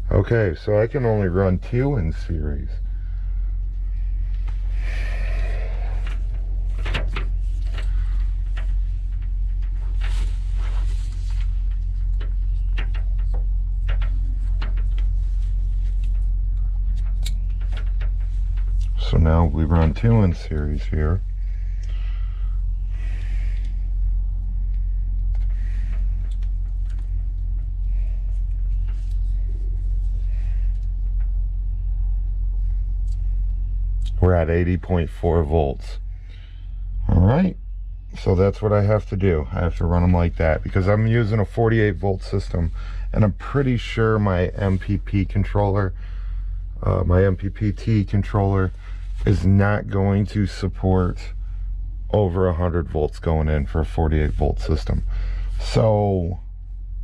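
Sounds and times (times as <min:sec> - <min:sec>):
steady low rumble: 0:00.0 - 0:57.0
cables clicking and rustling: 0:05.4 - 0:34.2.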